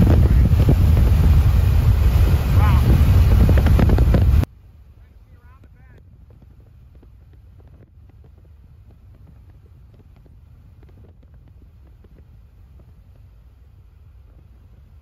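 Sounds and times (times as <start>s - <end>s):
wind buffeting microphone: 0.0s - 4.5s, 5.4s - 15.0s
faint crackles and clicks: 5.6s - 15.0s.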